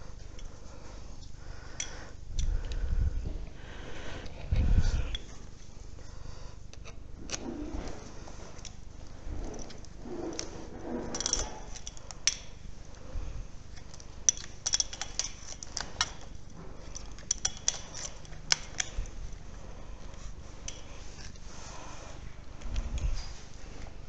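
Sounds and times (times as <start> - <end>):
tripod legs clicking and clattering: 6.7 - 13.0, 13.7 - 19.4.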